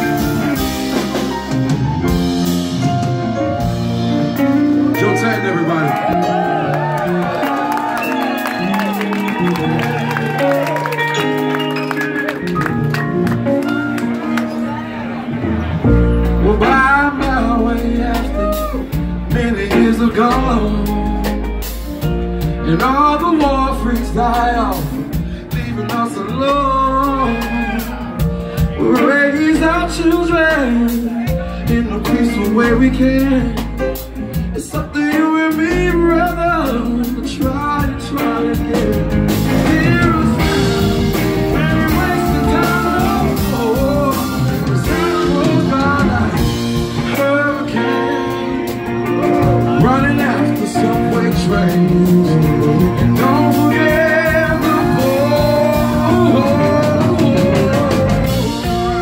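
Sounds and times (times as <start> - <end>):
live funk band playing: 0.0 - 59.0
man singing long bending notes: 22.6 - 33.8, 34.5 - 59.0.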